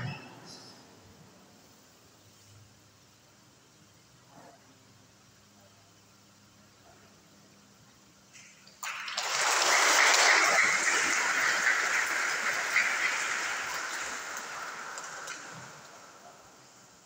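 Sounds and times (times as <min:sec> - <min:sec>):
congregation applauding: 0:08.8 - 0:16.7.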